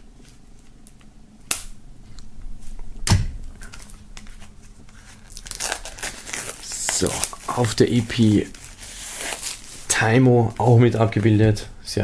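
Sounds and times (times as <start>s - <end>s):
knife cutting plastic wrap: 3.7s - 9.9s.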